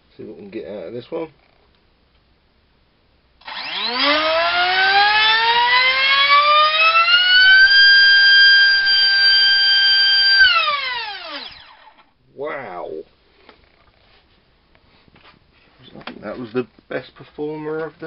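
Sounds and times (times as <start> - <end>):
electric motor propeller whine: 3.4 - 12.0.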